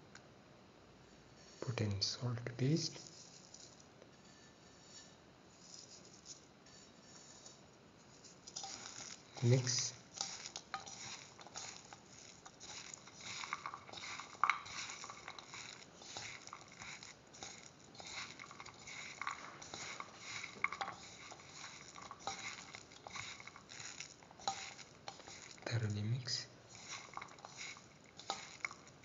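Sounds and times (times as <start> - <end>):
hand squishing food mixture: 8.1 - 29.0.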